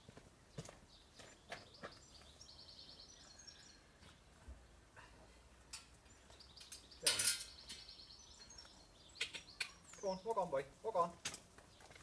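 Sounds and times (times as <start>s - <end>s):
small bird chirping: 0.5s - 3.9s, 6.0s - 10.7s.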